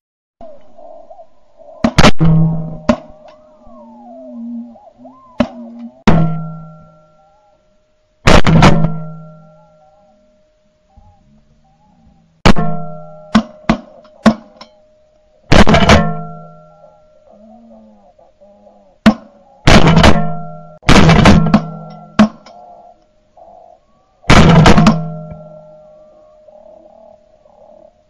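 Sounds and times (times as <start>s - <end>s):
shotgun blasts: 1.8s - 3.2s, 8.3s - 9.4s, 15.5s - 16.5s, 19.1s - 22.4s, 24.3s - 25.6s
ringing tone: 2.6s - 7.9s, 8.9s - 13.7s, 15.8s - 17.8s
sharp cracks: 15.5s - 16.7s, 19.0s - 23.1s, 24.3s - 25.8s.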